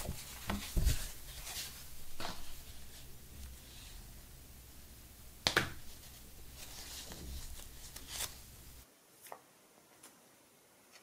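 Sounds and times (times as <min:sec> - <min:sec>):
paper leaflets rustling: 0:00.0 - 0:03.6, 0:05.8 - 0:09.4.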